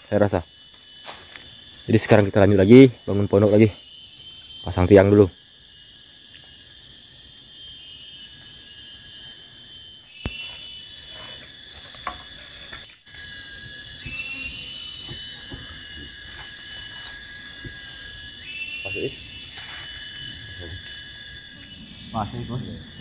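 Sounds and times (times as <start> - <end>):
insects shrilling: 0.0 - 23.0.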